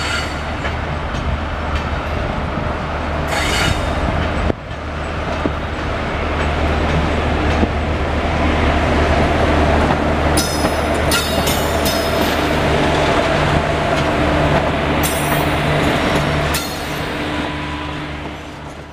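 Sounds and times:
locomotive rumble: 0:00.0 - 0:18.9
high-pitched wheel squeal: 0:03.3 - 0:03.9.

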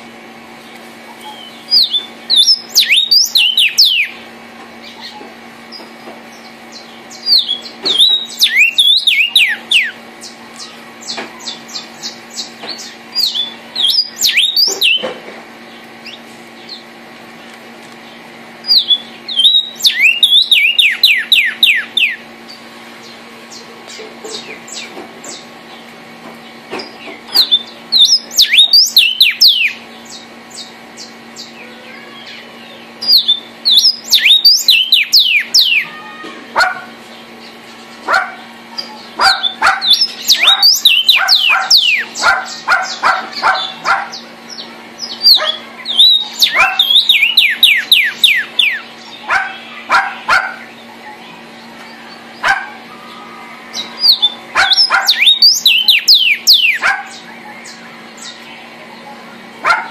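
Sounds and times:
steady low hum: 0:00.0 - 0:59.9
bird singing whistled phrases: 0:01.2 - 0:04.2, 0:07.2 - 0:15.1, 0:18.6 - 0:22.2, 0:27.4 - 0:29.8, 0:31.4 - 0:36.1, 0:39.3 - 0:43.0, 0:44.6 - 0:49.3, 0:53.0 - 0:58.5.

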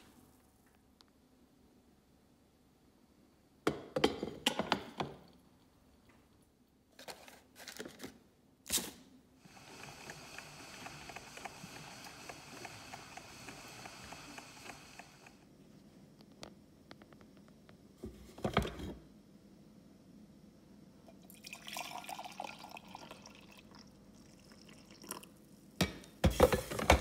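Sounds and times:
coffee maker hissing and crackling: 0:09.4 - 0:15.5, 0:26.2 - 0:27.0.

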